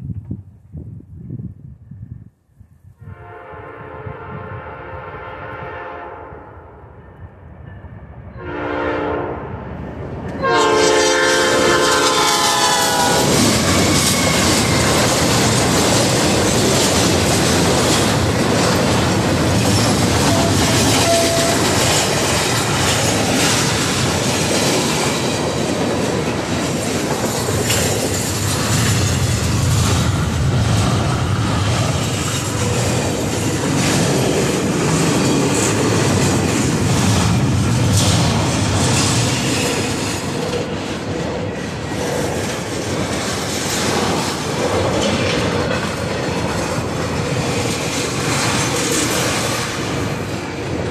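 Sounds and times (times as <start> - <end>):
locomotive horn blasts: 3.0 - 6.5, 8.4 - 9.4, 10.4 - 13.4, 20.2 - 21.8
train cars rumbling and clacking: 7.1 - 50.9.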